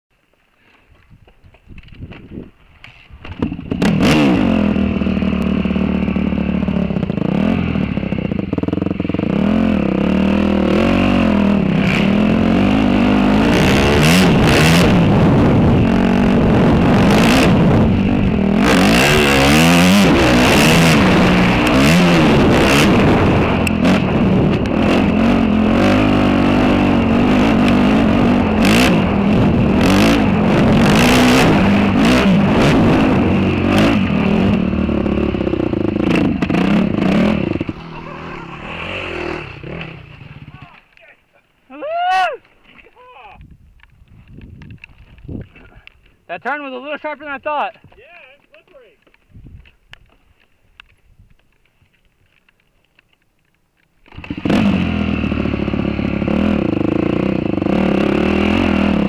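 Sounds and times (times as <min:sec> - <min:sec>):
dirt bike engine revving: 0:03.3 - 0:40.9, 0:54.0 - 0:59.0
short rushes of noise: 0:36.0 - 0:41.0.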